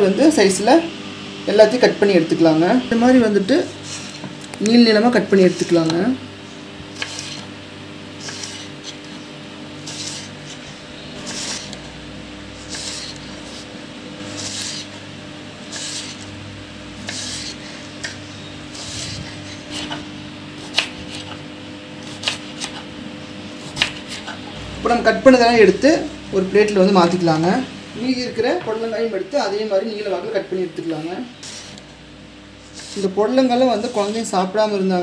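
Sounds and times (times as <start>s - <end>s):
faint steady hum: 0.0s - 35.0s
knife slicing on cutting board: 6.9s - 7.5s, 8.2s - 9.1s, 9.8s - 11.8s, 12.6s - 15.0s, 17.0s - 20.0s, 20.6s - 21.4s, 22.0s - 22.9s, 23.6s - 24.4s, 31.4s - 31.9s.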